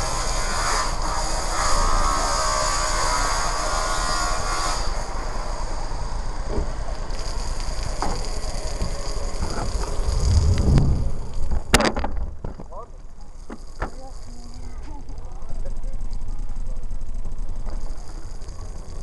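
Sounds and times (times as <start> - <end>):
shower water spraying: 6.8 - 11.4.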